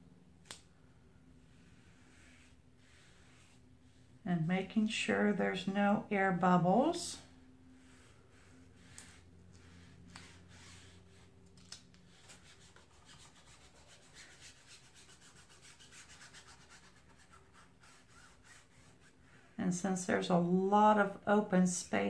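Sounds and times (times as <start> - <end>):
hand rubbing stencil on board: 1.5 - 4.0, 7.8 - 11.2, 12.1 - 19.2.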